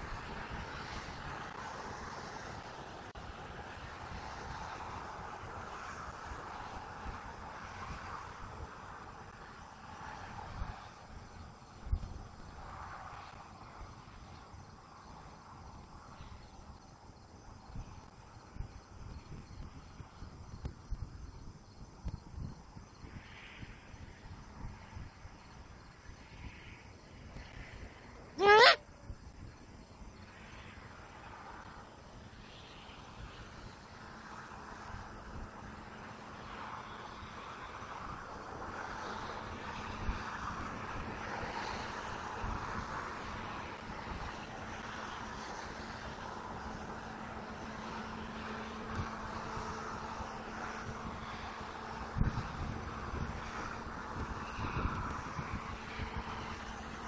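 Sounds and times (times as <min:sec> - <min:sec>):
wind rumble on microphone: 0:00.0 - 0:57.0.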